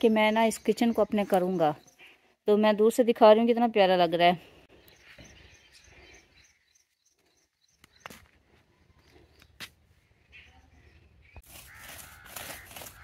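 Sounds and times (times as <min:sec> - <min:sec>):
soft bird chirps: 0:04.6 - 0:13.0.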